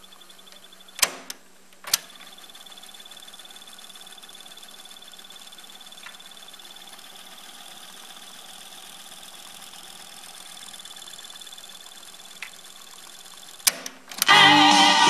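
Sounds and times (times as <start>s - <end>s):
cassette deck whirring: 0.0s - 15.0s.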